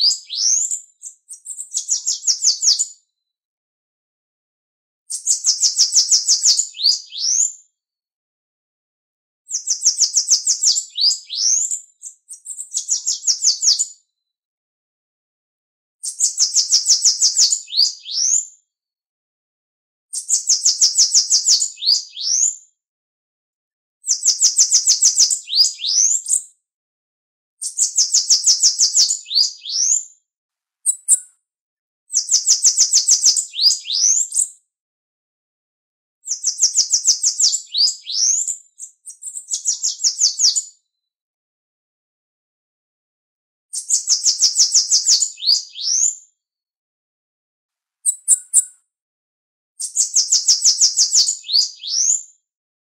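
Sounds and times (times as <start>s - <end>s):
bird singing high trills: 30.9s - 31.3s, 48.1s - 48.8s.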